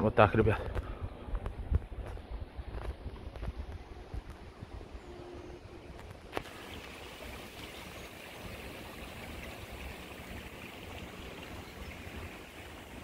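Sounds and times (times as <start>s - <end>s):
running water hiss: 6.3s - 13.0s.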